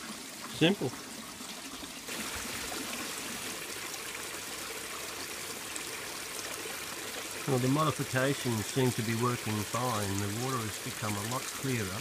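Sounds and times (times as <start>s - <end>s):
water splashing into pond: 0.0s - 12.0s
pipes bubbling at water surface: 6.5s - 12.0s.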